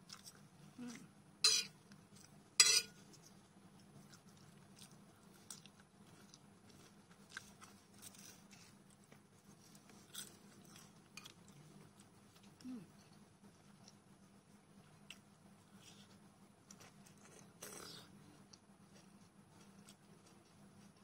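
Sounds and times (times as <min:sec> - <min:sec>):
person chewing: 0:00.0 - 0:01.0, 0:03.8 - 0:12.7.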